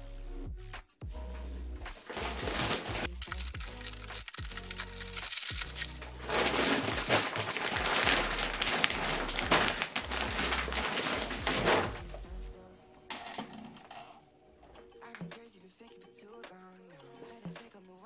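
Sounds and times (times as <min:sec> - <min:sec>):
plastic film crinkling: 0:02.0 - 0:12.2
plastic bag rustling: 0:02.0 - 0:12.5.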